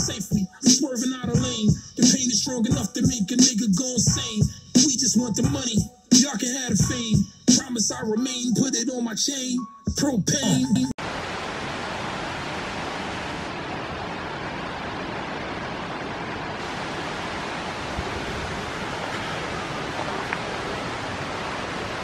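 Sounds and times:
creek water flowing: 14.0 - 22.0.

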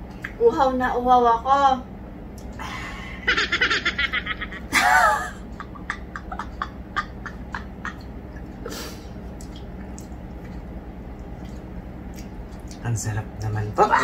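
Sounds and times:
puff of breath: 8.7 - 9.1.

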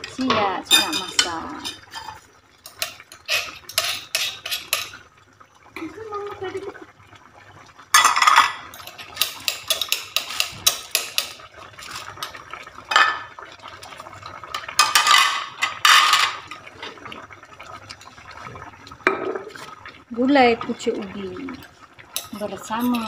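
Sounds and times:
metal pots and pans clattering: 0.0 - 5.0, 7.9 - 13.4, 14.5 - 17.1, 22.2 - 23.0.

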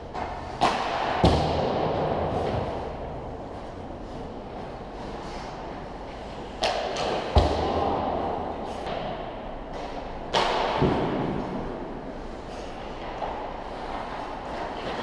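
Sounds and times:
hockey stick cracking on puck: 0.1 - 2.7, 6.5 - 11.8
puck striking with low thud: 0.1 - 3.1, 6.6 - 12.0.

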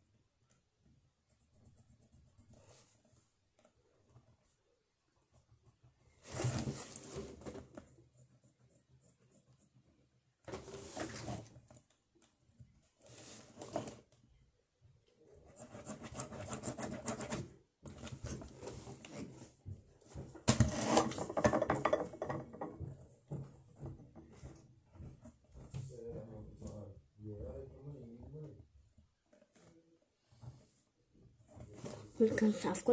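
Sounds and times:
scratching and rubbing on paper: 1.1 - 11.6, 15.4 - 19.6.

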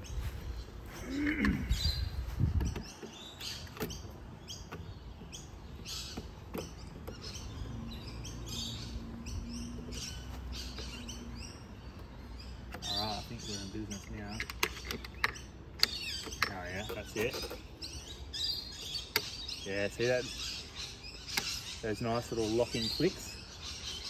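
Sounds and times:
birds chirping: 0.0 - 24.0
plastic latch clicks and knocks: 2.6 - 7.3, 13.9 - 17.6.

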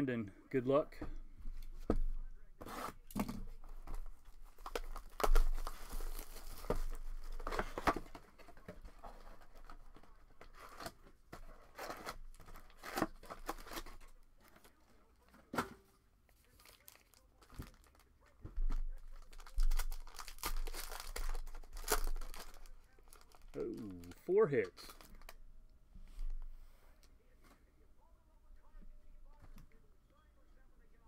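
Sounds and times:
card packs rustling: 3.6 - 15.6, 16.4 - 25.4
shrink wrap crinkling and tearing: 4.2 - 8.1, 9.1 - 14.8, 16.4 - 25.4.

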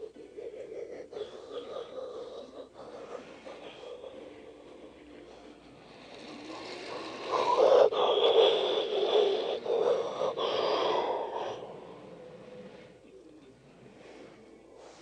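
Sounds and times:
toy train wheels on track: 1.4 - 11.6
toy train motor whirring: 4.6 - 10.9.

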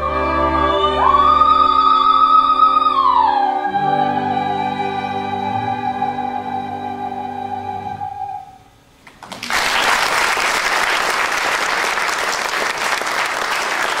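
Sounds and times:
soprano with small orchestra: 0.0 - 8.8
audience applause: 9.1 - 14.0.

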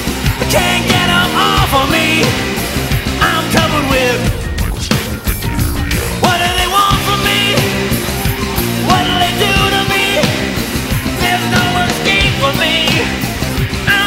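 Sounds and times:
live rock band playing: 0.0 - 14.0
man singing into microphone: 0.4 - 2.4, 3.2 - 4.9, 6.2 - 7.8, 8.8 - 10.5, 11.2 - 13.1.

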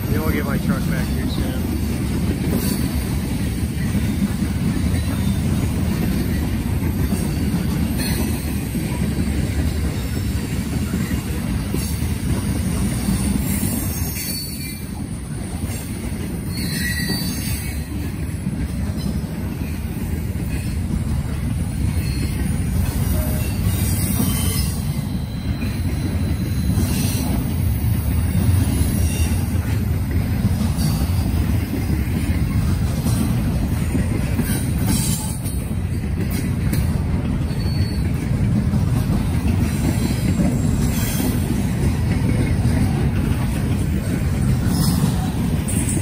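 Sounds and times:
train wheels rumbling on rail: 0.0 - 46.0
faint wheel squeals: 16.4 - 17.9, 37.4 - 38.3.

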